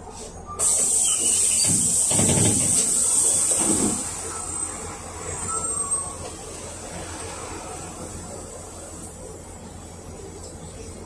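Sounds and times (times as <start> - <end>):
bus engine humming: 0.0 - 11.0
compressed air hiss: 0.6 - 3.7.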